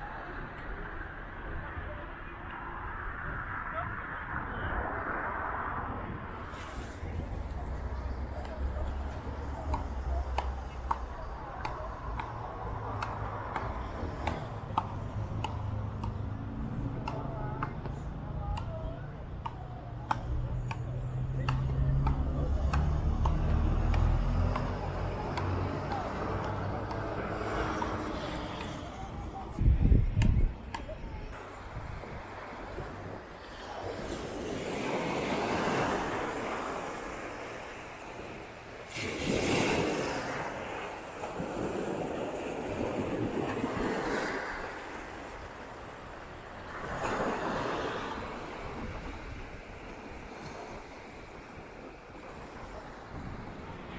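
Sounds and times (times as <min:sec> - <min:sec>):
sea wave washing up sand: 0:31.4 - 0:53.9.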